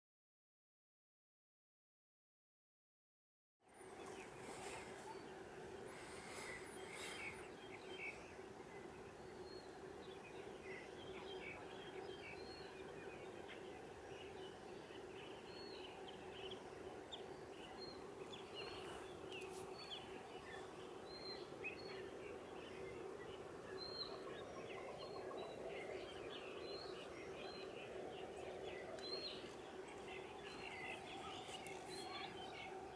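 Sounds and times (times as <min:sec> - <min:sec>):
steady low hum: 0:03.7 - 0:32.9
birds chirping and calling: 0:04.0 - 0:08.2, 0:15.2 - 0:32.9.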